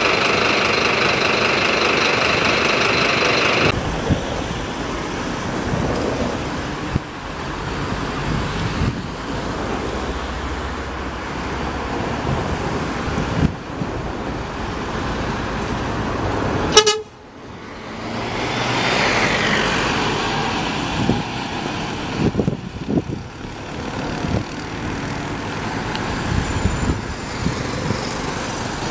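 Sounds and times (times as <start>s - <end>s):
bus passing by: 0.0s - 28.9s
street traffic: 0.0s - 28.9s
short horn toot: 16.7s - 17.1s.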